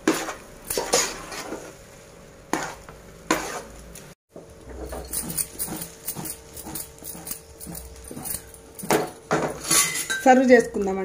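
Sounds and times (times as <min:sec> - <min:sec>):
spoon knocking and scraping pot: 0:02.5 - 0:03.7, 0:04.3 - 0:10.8.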